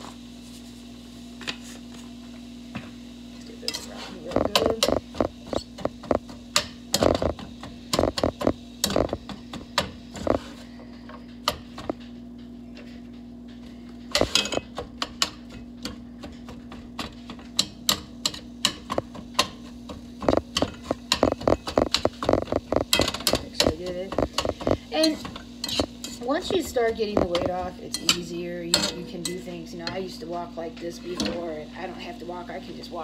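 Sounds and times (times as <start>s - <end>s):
steady low hum: 0.0s - 33.0s
plastic utensil tapping on skillet: 17.6s - 26.0s.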